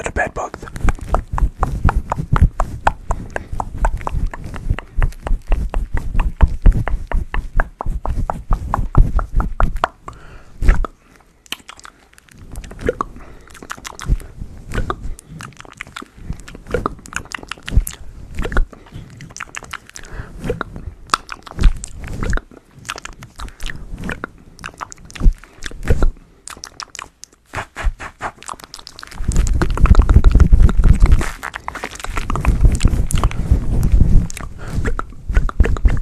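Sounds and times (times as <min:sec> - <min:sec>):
crisp clicks and crackles: 0:28.4 - 0:35.0
low rumbling rub on windscreen: 0:32.2 - 0:35.3.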